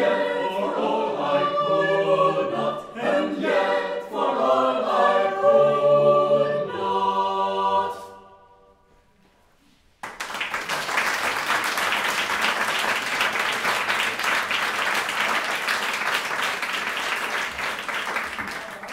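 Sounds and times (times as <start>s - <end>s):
audience applauding: 10.0s - 18.9s.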